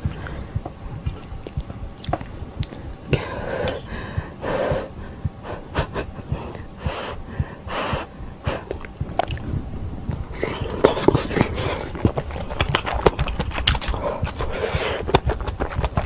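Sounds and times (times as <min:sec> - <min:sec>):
wet chewing and mouth clicks: 0:00.0 - 0:04.2, 0:06.1 - 0:16.0.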